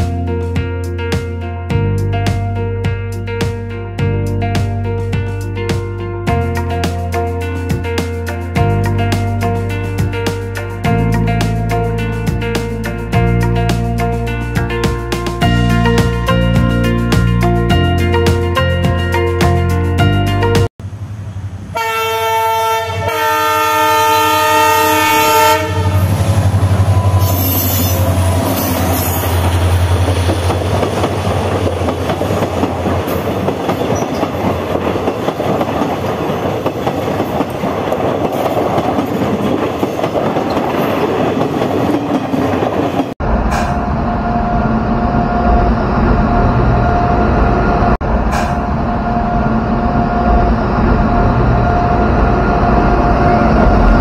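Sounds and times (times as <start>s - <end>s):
train horn: 21.7s - 29.4s
locomotive engine rumble: 25.6s - 54.0s
wheels clattering over rail joints: 28.0s - 43.7s.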